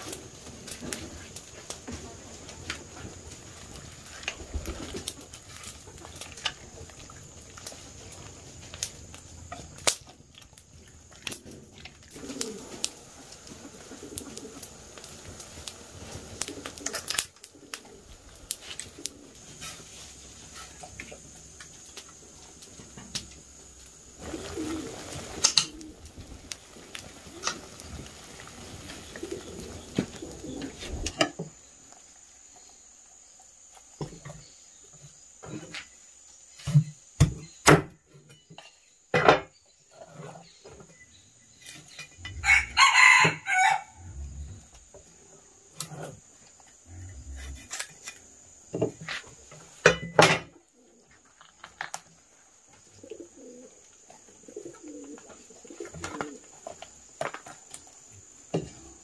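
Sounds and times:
birds cooing: 10.9 - 31.6, 41.8 - 47.7, 50.5 - 51.3, 52.8 - 57.6.

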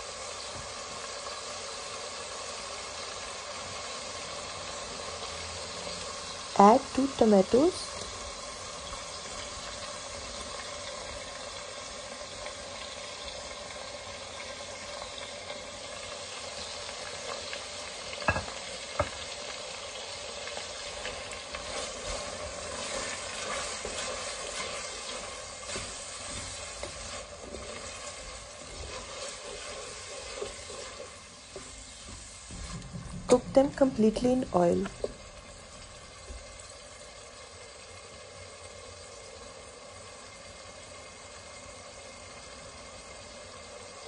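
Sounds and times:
onions frying in oil: 0.0 - 44.0
wooden spoon stirring pot: 20.4 - 36.5.

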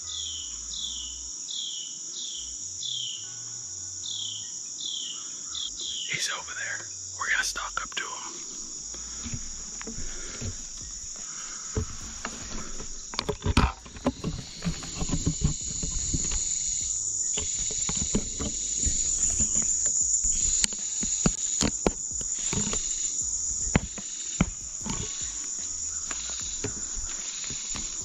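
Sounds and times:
crickets chirping: 0.0 - 28.0
rustles and knocks: 8.4 - 28.0.

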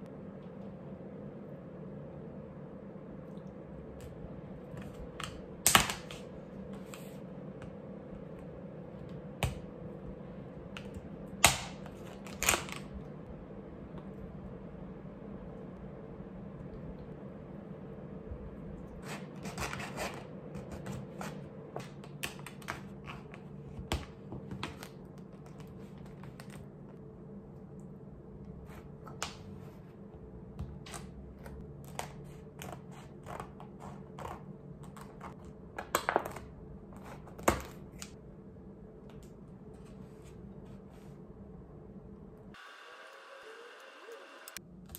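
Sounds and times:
low steady hum: 0.0 - 44.9.

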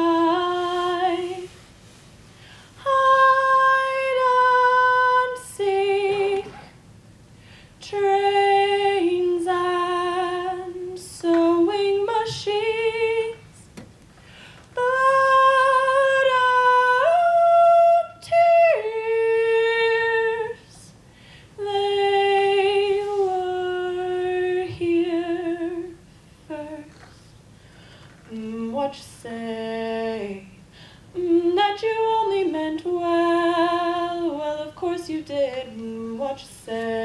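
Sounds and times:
person singing a cappella: 0.0 - 1.6, 2.8 - 6.7, 7.8 - 13.6, 14.7 - 21.0, 21.6 - 27.3, 28.2 - 37.0.

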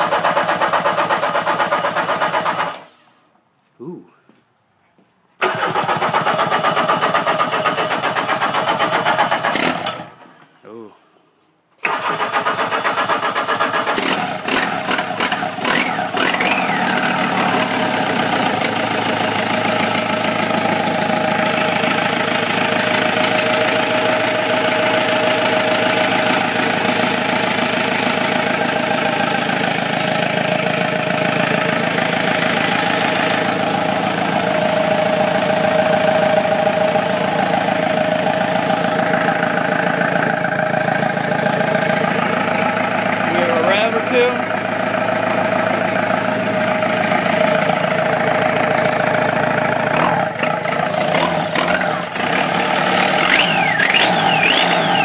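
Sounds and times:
diesel engine starting and idling: 0.0 - 3.3, 5.4 - 10.6, 11.8 - 55.0.

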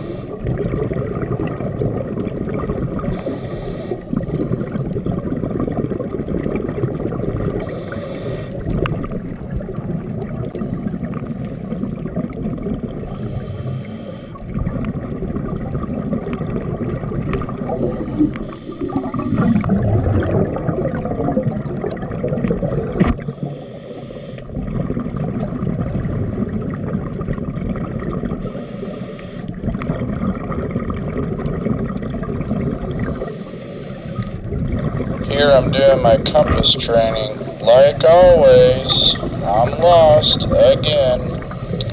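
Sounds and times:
regulator breath hiss: 0.0 - 0.4, 3.1 - 4.1, 7.6 - 8.6, 13.1 - 14.4, 23.3 - 24.4, 28.4 - 29.5, 33.3 - 34.4
underwater bubbling: 0.0 - 41.9.

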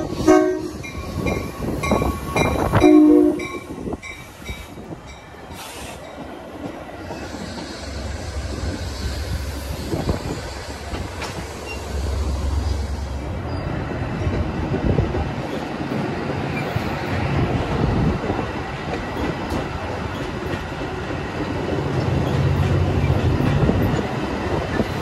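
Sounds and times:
train wheels rumbling on rails: 0.0 - 25.0
sharp clicks of train wheels: 3.6 - 25.0.

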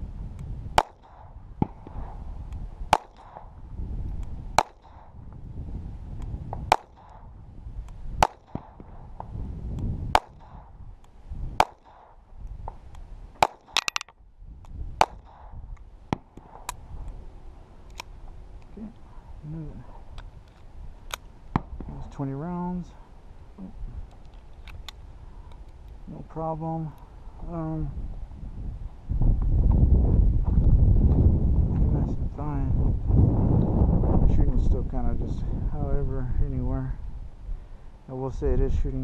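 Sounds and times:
pistol shots cracking: 0.8 - 1.8, 2.9 - 3.5, 4.6 - 5.2, 6.7 - 7.2, 8.2 - 8.8, 11.6 - 12.2.

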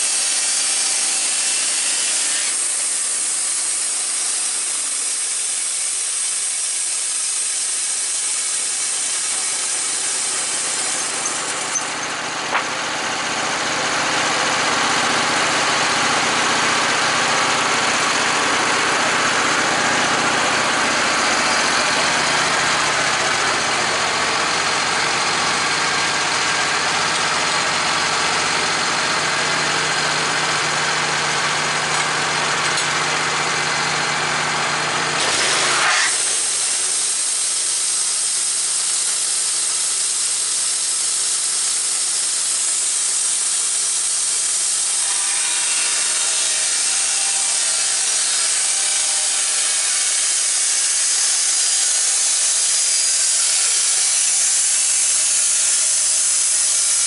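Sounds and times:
sawmill engine hum: 0.0 - 57.0
band blade cutting wood: 0.1 - 5.2, 5.8 - 12.8, 35.2 - 36.8.

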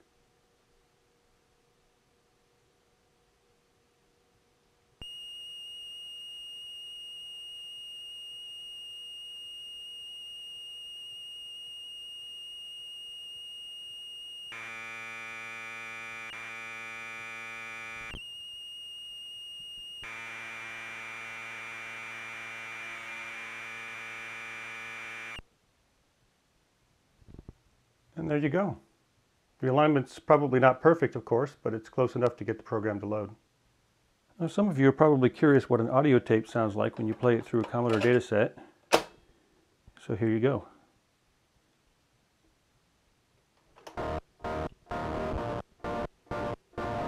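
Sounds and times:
harsh buzzing tape data: 5.0 - 25.4, 43.9 - 47.0.

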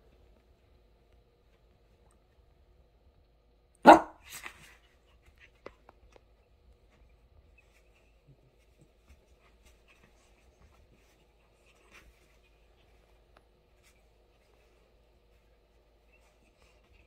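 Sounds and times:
dogs scratching and rustling: 4.2 - 17.0.

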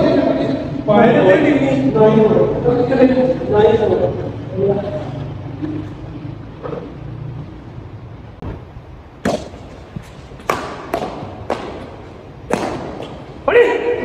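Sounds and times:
racket hitting shuttlecock: 9.2 - 13.5.

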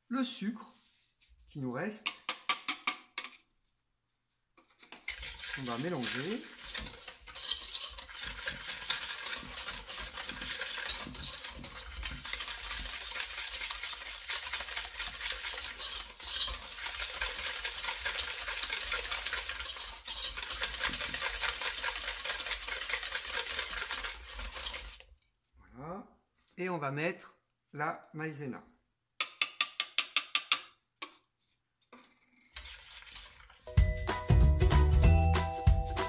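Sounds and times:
whisk rattling against metal bowl: 4.8 - 25.0, 32.6 - 33.7.

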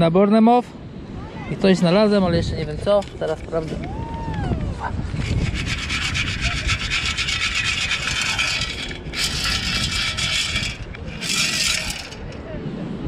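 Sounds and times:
sand shaken through a sieve: 5.0 - 12.4.

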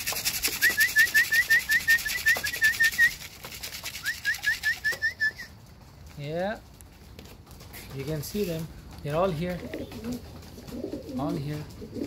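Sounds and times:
pigeon wing flaps: 0.0 - 5.4, 7.2 - 12.0
whistled high chirps: 0.6 - 3.2, 4.0 - 5.5.

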